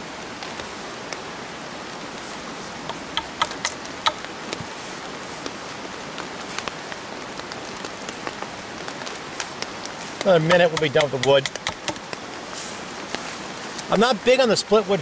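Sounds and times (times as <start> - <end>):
rain falling on a tarp: 0.0 - 15.0
sharp ticks of raindrops: 0.0 - 15.0.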